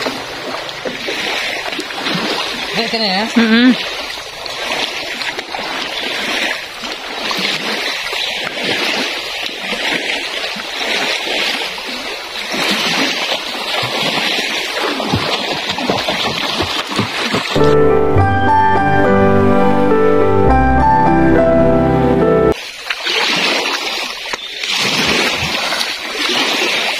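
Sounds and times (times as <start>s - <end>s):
lake water lapping at shore: 0.0s - 17.7s, 22.6s - 26.9s
soft instrumental music: 17.6s - 22.6s.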